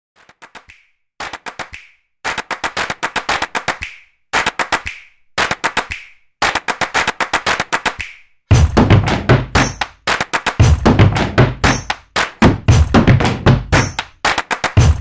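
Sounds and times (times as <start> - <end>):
clap-like percussion music: 0.2 - 15.0
music with heavy bass beat: 8.5 - 15.0.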